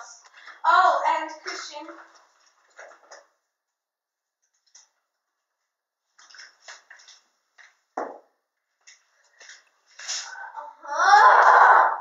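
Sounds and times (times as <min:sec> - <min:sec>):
faint clicks and taps: 0:04.4 - 0:09.8.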